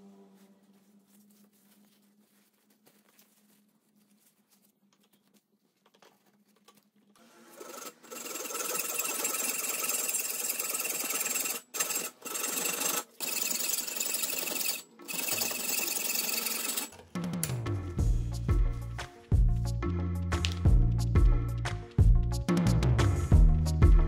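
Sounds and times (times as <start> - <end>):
background music: 14.1 - 24.0.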